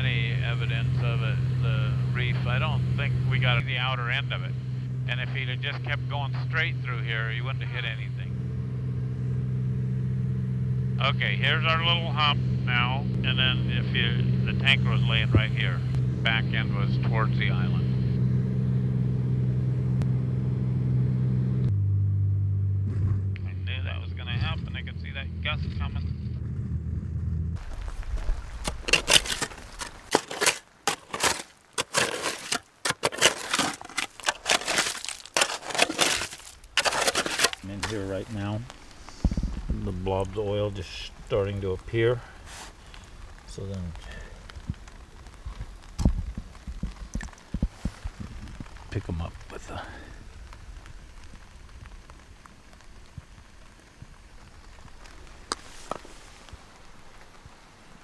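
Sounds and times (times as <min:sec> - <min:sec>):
motor drone: 0:00.0 - 0:27.6
footsteps on gravel: 0:27.6 - 0:39.8
shovel scraping gravel: 0:28.6 - 0:38.4
faint outdoor hiss: 0:37.6 - 0:58.0.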